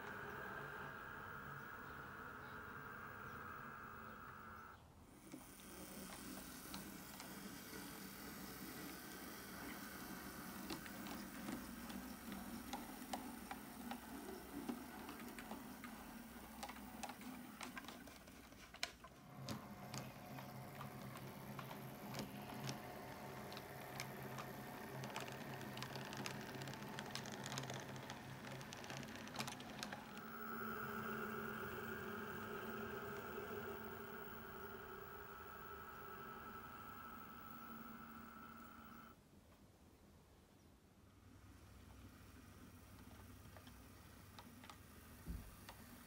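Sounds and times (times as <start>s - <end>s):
locomotive motor hum: 0.0s - 4.8s, 19.2s - 39.2s
model train wheels clicking: 0.0s - 39.2s.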